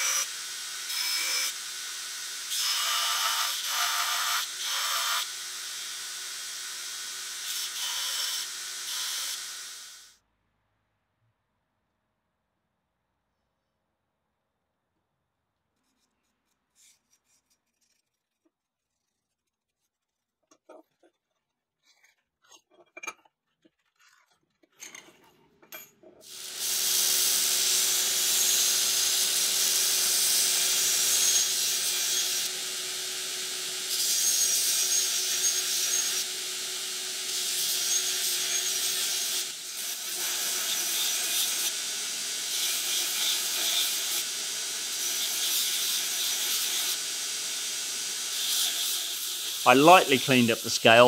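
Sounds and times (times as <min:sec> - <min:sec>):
grinder hissing on steel: 0:00.0 - 0:10.1, 0:26.2 - 0:51.0.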